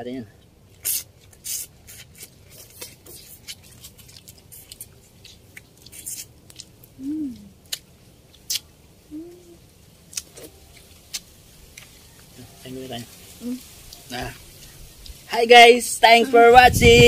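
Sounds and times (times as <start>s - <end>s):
lip smacks and chewing clicks: 0.4s - 8.7s, 10.1s - 12.3s.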